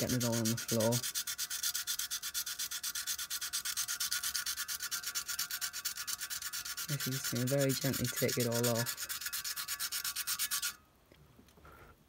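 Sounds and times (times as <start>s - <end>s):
sandpaper rubbing on metal: 0.0s - 10.8s.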